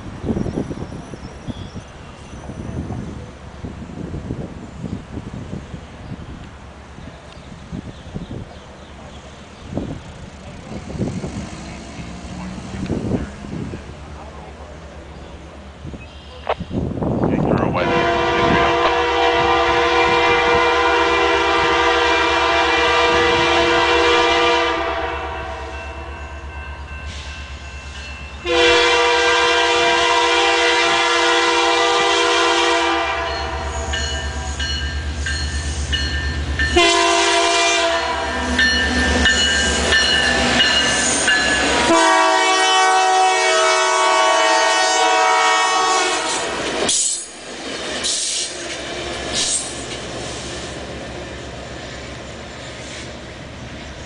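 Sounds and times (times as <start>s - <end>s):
train wheels rumbling and clacking: 0.0s - 24.2s, 33.0s - 54.0s
locomotive air horn blasts: 17.8s - 26.1s, 28.4s - 34.8s, 36.6s - 40.2s, 41.7s - 46.6s.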